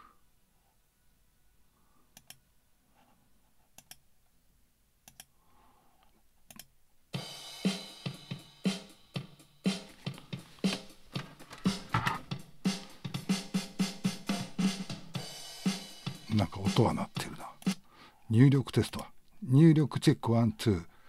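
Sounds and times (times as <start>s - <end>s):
mouse clicks: 5.0s - 5.3s
drum-driven music track: 7.1s - 17.9s.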